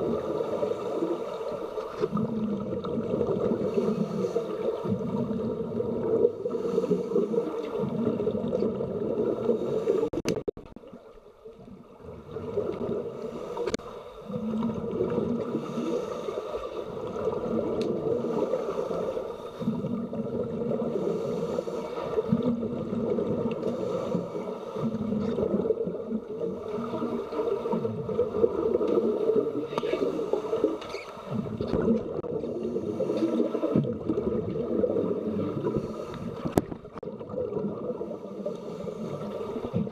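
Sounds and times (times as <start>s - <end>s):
bubbling exhaled breath: 2.0s - 10.2s
muffled underwater noise: 12.3s - 39.9s.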